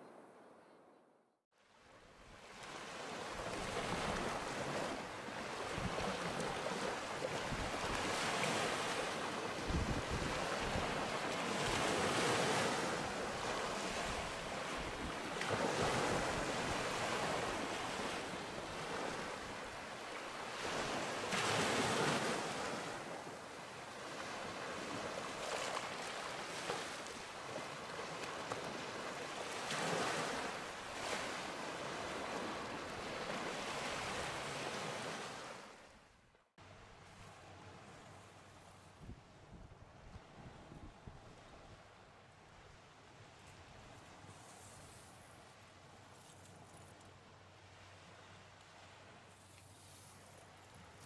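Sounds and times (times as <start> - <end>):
small waves breaking on beach: 1.6 - 38.9.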